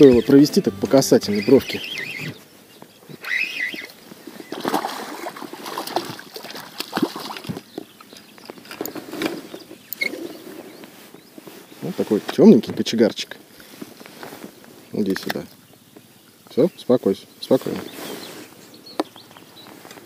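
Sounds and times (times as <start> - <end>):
fish splashing at surface: 4.5 - 7.6.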